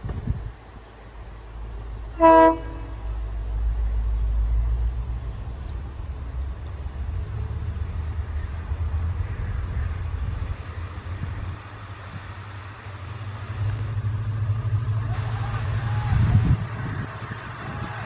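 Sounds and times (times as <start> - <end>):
locomotive engine rumble: 0.0 - 18.0
train horn blast: 2.1 - 3.2.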